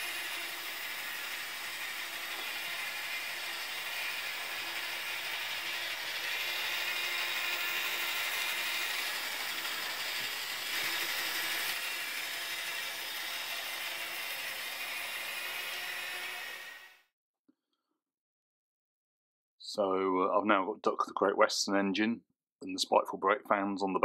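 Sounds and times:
model train whirring and rattling: 0:00.0 - 0:16.8.

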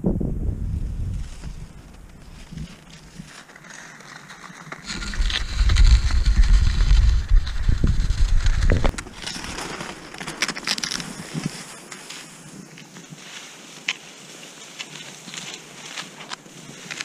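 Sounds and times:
wind buffeting the microphone: 0:00.0 - 0:03.3, 0:04.8 - 0:09.5
skis hissing on snow: 0:04.3 - 0:08.9, 0:11.0 - 0:17.0.

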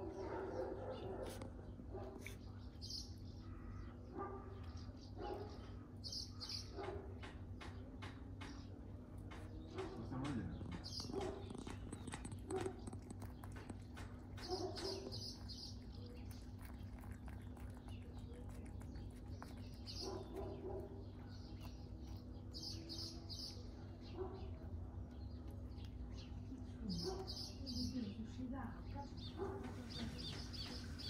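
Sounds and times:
cat licking wet smacking: 0:15.2 - 0:20.4.

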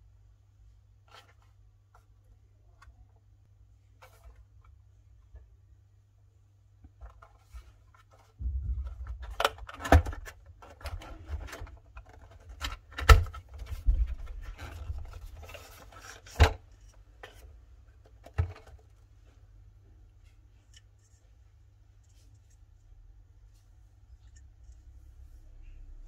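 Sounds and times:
cardboard rubbing and scraping: 0:10.2 - 0:16.6.

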